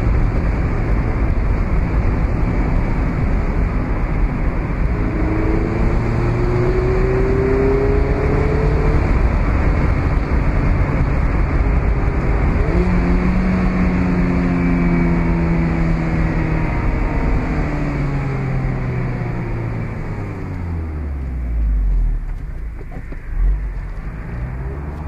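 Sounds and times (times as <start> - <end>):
wind noise: 0.0 - 19.0
car engine revving: 0.0 - 25.0.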